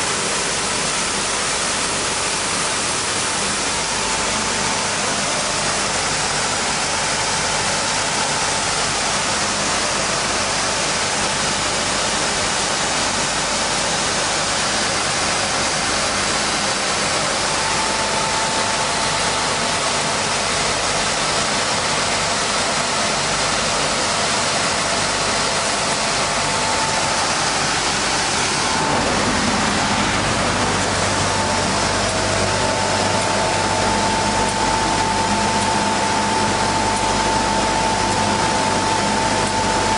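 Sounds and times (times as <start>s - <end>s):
sanding machine rushing noise: 25.2s - 34.5s.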